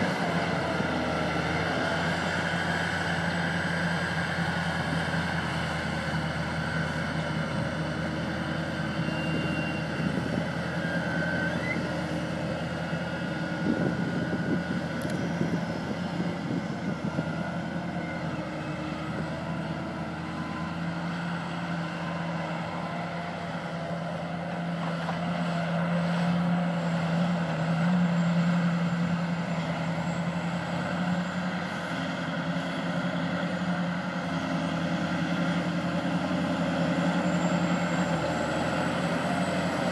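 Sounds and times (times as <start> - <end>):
heavy diesel engine drone: 0.0 - 39.9.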